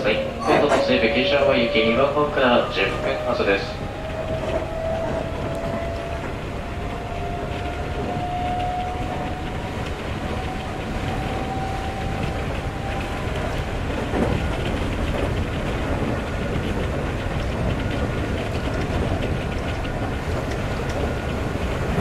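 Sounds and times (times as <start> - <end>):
rumble of wheels on rail: 0.0 - 22.0
electric train motor tone rising: 0.2 - 13.8.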